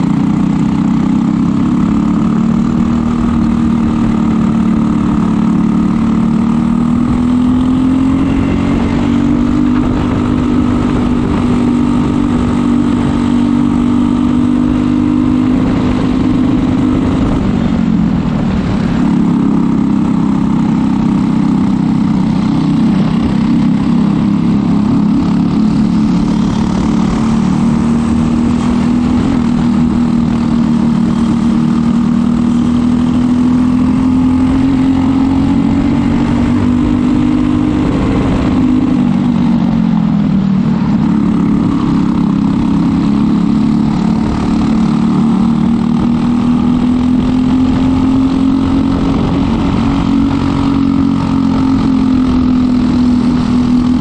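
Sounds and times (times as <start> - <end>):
kart engine running hard: 0.0 - 54.0.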